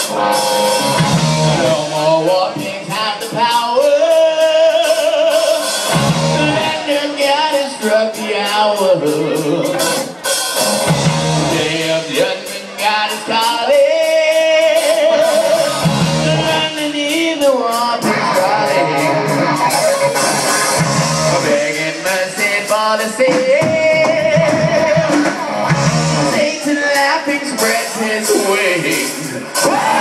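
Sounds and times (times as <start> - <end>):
lead guitar bending notes: 0.0 - 3.6, 4.8 - 8.0, 8.9 - 12.1, 14.7 - 22.5, 23.6 - 26.7
live hard rock band playing: 0.0 - 30.0.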